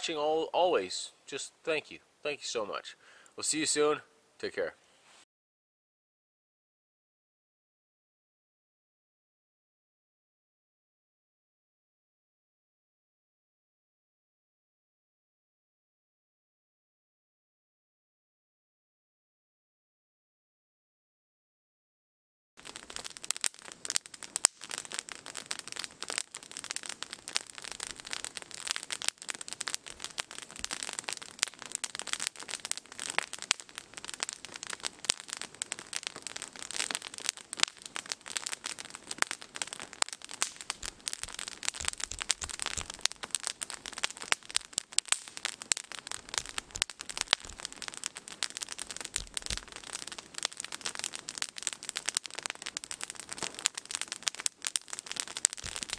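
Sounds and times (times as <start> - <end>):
campfire crackling and popping: 22.6 - 55.9.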